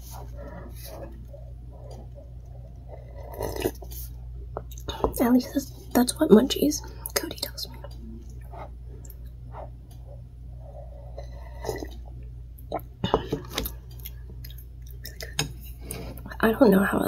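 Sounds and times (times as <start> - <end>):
low steady hum: 0.0 - 17.0
person slurping broth: 2.8 - 4.1, 10.8 - 12.0.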